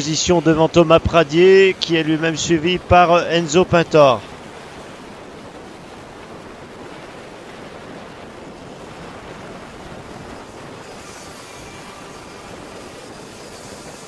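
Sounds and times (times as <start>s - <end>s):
wind on microphone: 0.0s - 14.0s
distant racing karts: 9.7s - 14.0s.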